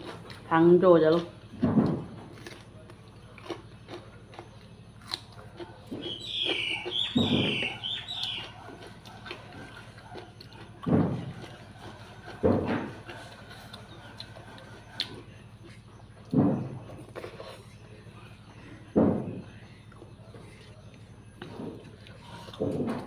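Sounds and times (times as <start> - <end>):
person chewing food: 0.0 - 0.5, 1.1 - 18.9, 19.5 - 23.0
bird chirping: 5.9 - 8.6.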